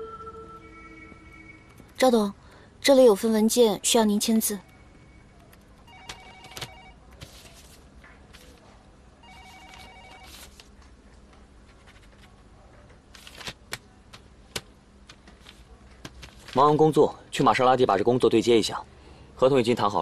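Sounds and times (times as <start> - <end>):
telephone ringing: 4.6 - 7.1, 9.2 - 10.6.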